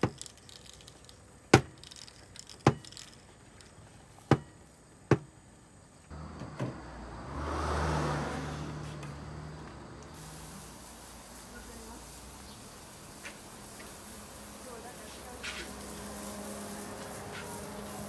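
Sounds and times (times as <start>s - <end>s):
car passing by: 6.1s - 10.9s, 15.2s - 18.0s.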